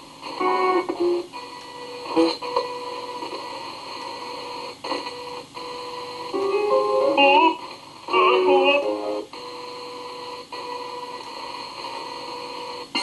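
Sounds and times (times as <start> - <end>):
radio static hiss: 0.0 - 13.0
snatches of broadcast sound: 2.0 - 5.2.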